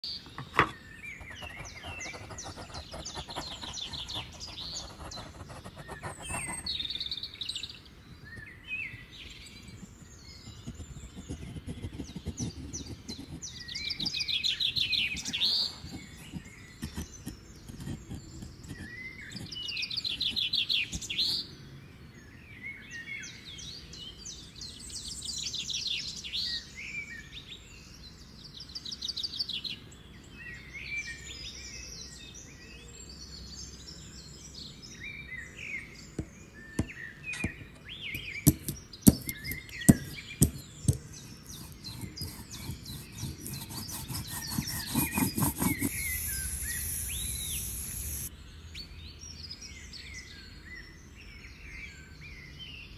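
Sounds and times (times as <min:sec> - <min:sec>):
small birds chirping and trilling: 0:00.0 - 0:52.9
carving gouge scraping wood: 0:00.3 - 0:06.9, 0:09.5 - 0:21.4, 0:36.2 - 0:48.3.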